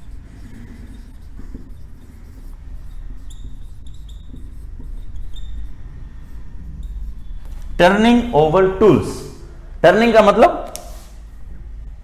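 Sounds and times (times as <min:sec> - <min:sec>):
marker squeaking on whiteboard: 0:00.0 - 0:08.3.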